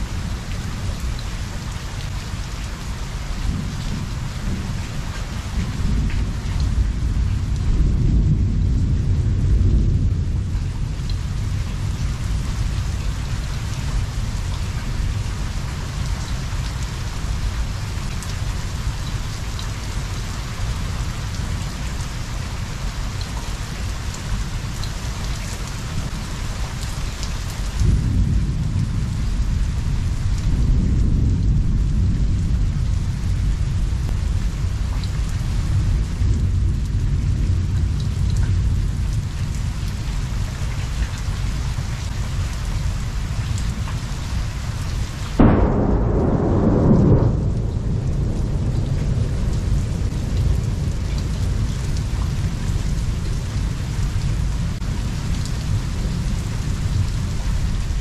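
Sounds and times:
heavy rain falling: 0.0 - 58.0
thunder rumbling: 3.4 - 16.2, 27.7 - 40.6, 45.3 - 58.0.

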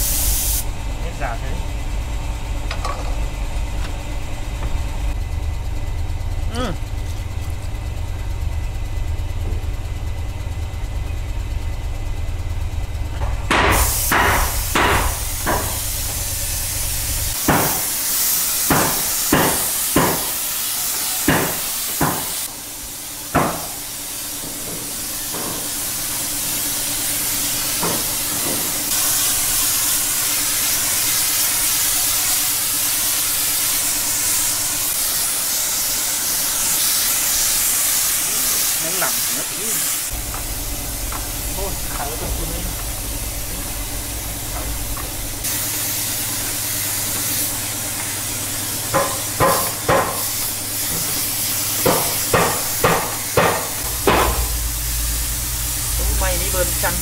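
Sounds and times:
loud steady hiss: 0.0 - 1.5, 13.5 - 57.0
low engine rumble: 0.0 - 17.4, 40.0 - 51.9, 53.6 - 57.0
sharp hammer-like knocks: 13.2 - 15.8, 17.5 - 17.9, 18.7 - 20.3, 48.9 - 50.2, 51.8 - 54.5.

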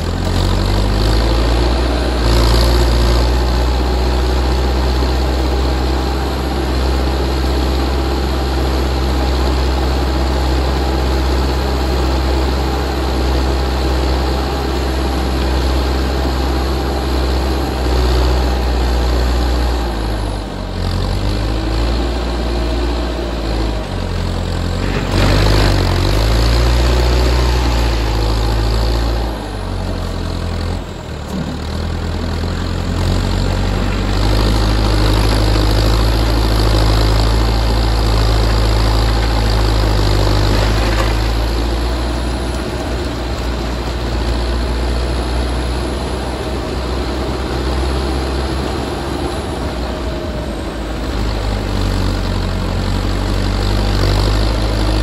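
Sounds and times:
backhoe engine under load: 0.0 - 55.0.

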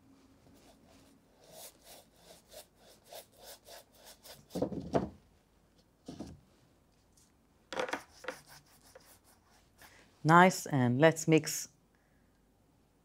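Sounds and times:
paintbrush scrubbing on canvas: 0.5 - 4.6, 8.0 - 9.9.

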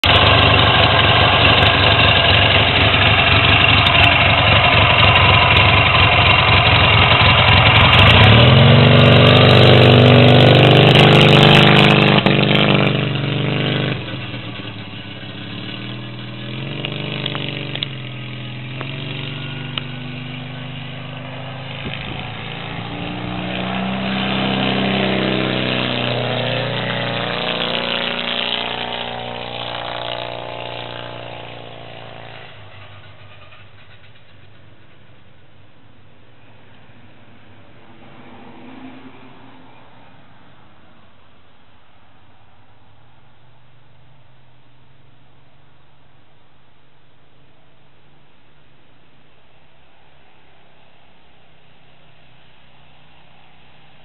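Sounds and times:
scooter engine running: 0.0 - 35.0.

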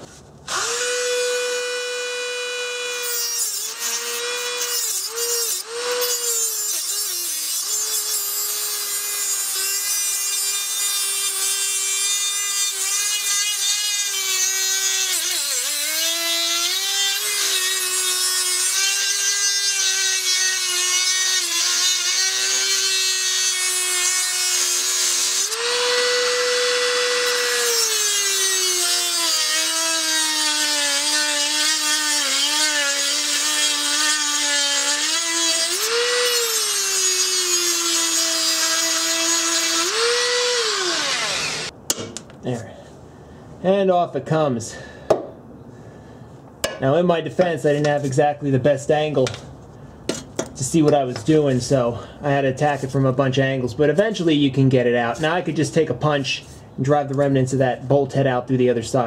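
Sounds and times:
rotary tool grinding metal: 0.5 - 41.7.

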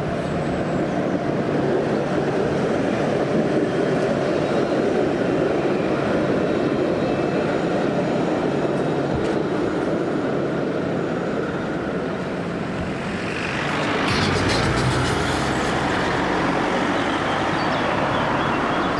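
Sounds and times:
road and traffic rumble: 8.8 - 18.9.

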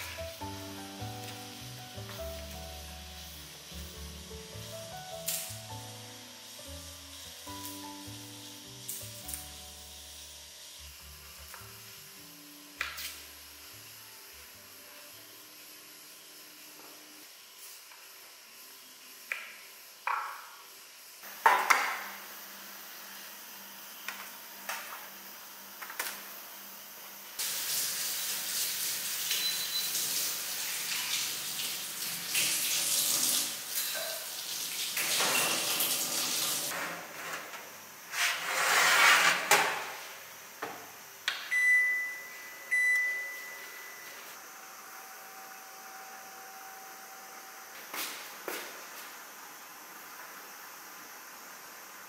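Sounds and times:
oven electronic beeps: 29.3 - 30.2, 41.4 - 44.4.

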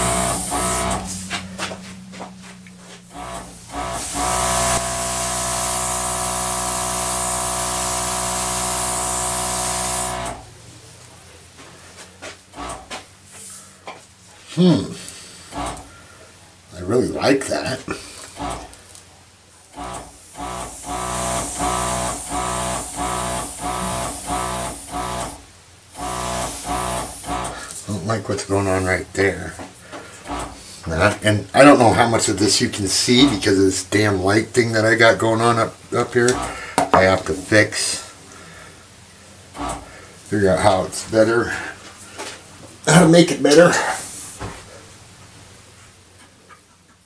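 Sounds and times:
air gun hissing: 0.0 - 10.5, 12.5 - 12.9, 15.0 - 16.0, 18.1 - 18.8, 19.7 - 27.9, 30.1 - 30.8, 36.2 - 38.3, 39.5 - 40.3, 43.6 - 44.4
motor hum: 0.0 - 10.9, 15.4 - 16.1, 18.3 - 18.9, 19.7 - 27.7, 39.4 - 40.0.

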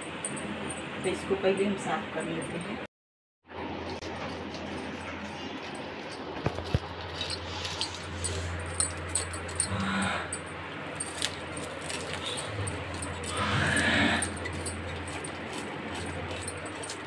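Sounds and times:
steady low hum: 3.5 - 17.0.

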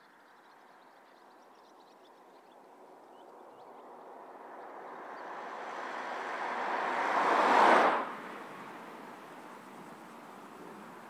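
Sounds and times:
car driving past: 3.6 - 11.0.

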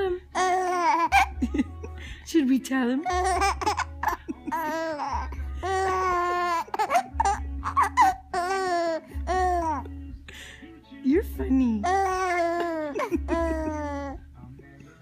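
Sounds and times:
baby laughing: 0.3 - 2.0, 3.0 - 9.9, 11.8 - 14.2.

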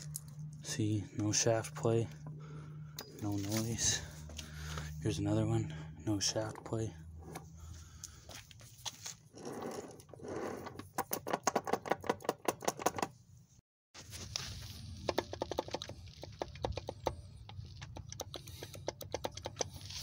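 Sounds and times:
gearbox clicks and rattles: 9.4 - 13.2, 15.0 - 20.0.

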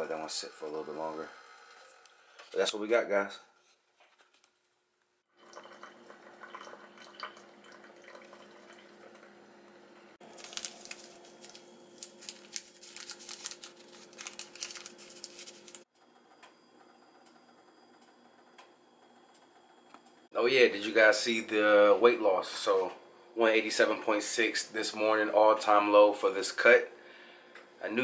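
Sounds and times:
coffee maker humming: 0.0 - 2.5, 5.3 - 20.3
coffee streaming into mug: 5.4 - 9.6
granules pouring: 10.2 - 15.8
paper packet crinkling: 10.2 - 15.8.

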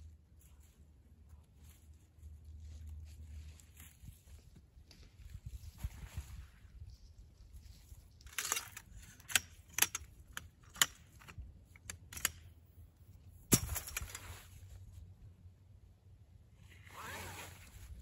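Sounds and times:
metal frame clicking and clacking: 8.3 - 12.5.

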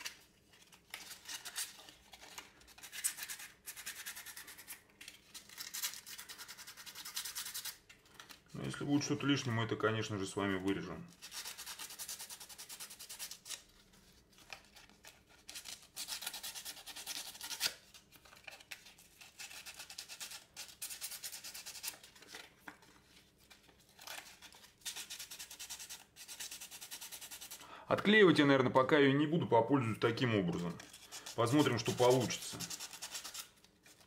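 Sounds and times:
sandpaper rasping on wood: 24.9 - 27.6, 31.0 - 33.5.

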